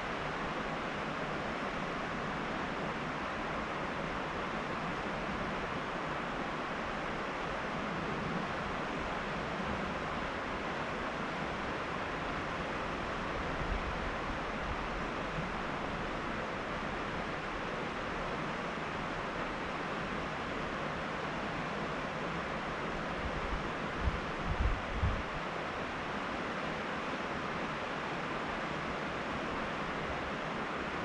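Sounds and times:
river water rushing: 0.0s - 31.0s.

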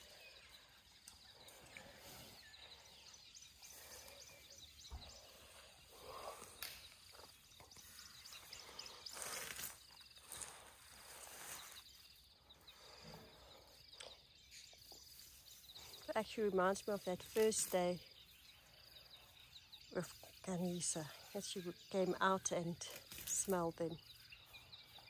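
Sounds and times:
soft crunches: 5.3s - 12.0s
elephant tearing grass: 8.6s - 11.9s.

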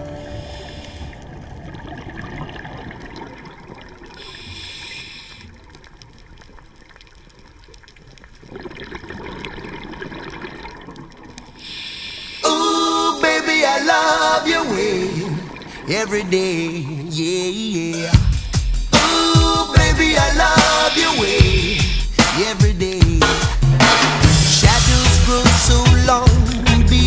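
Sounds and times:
music: 0.0s - 1.2s, 17.9s - 27.0s
underwater watery hiss: 0.2s - 1.3s, 4.0s - 5.6s, 11.5s - 13.0s, 20.1s - 22.3s.

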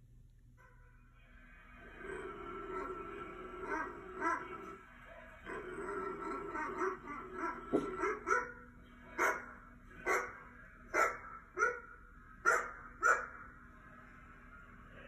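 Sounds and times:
dog barking through speaker: 3.6s - 4.8s, 5.5s - 13.5s.

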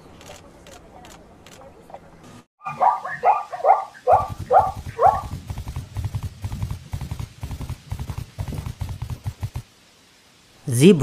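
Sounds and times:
zebra barking yelps: 2.6s - 5.4s
galloping hoofbeats: 3.2s - 9.7s.

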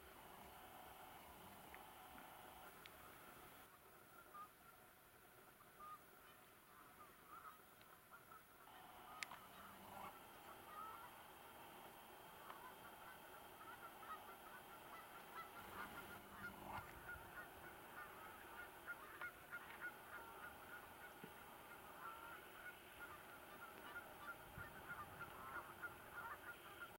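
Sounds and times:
steady background hiss: 0.0s - 27.0s
distant birds calling: 8.7s - 27.0s.

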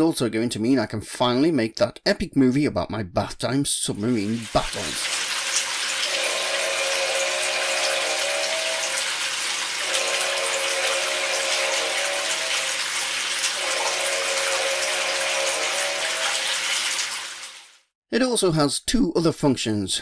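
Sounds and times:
tap water pouring into a tub: 4.0s - 17.9s
held humming tones: 9.8s - 12.9s.

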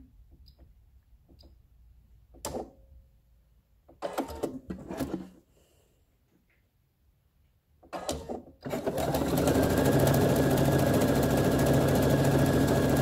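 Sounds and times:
sewing machine stitching: 4.0s - 5.4s, 7.9s - 13.0s.

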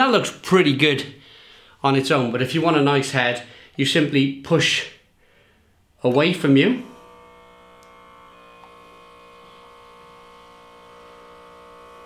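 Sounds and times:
beer dispenser electric hum: 6.7s - 12.0s.

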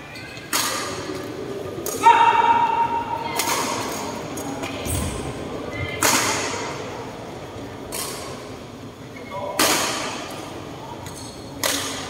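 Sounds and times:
racket hitting shuttlecock: 11.6s - 12.0s.

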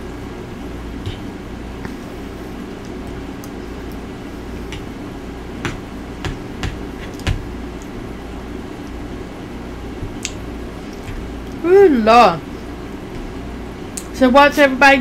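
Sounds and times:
steady low hum: 0.0s - 15.0s
person eating clicks and smacks: 2.6s - 5.0s, 5.6s - 8.0s, 10.1s - 11.6s, 13.9s - 14.2s.

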